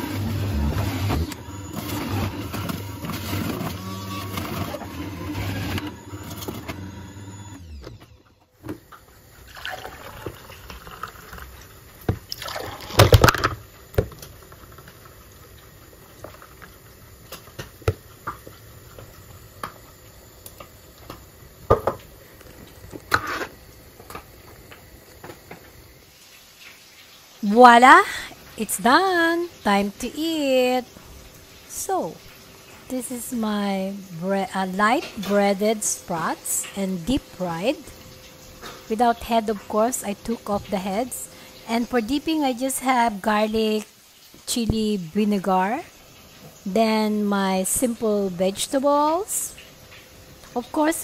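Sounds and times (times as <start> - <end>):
juicer motor running: 0.0 - 26.0, 34.6 - 42.6
juice pouring into glasses: 9.3 - 15.7.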